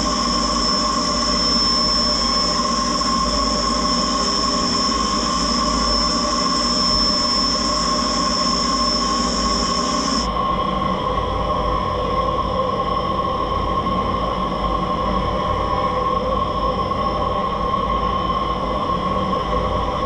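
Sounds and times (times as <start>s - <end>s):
machine hum: 0.0s - 10.4s
milling spindle whine: 0.0s - 10.6s.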